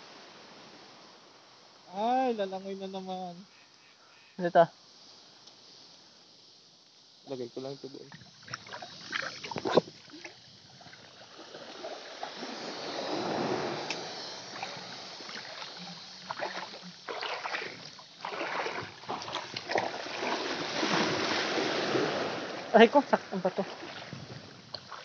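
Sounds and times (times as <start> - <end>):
seawater sloshing and splashing: 8.1 - 25.0.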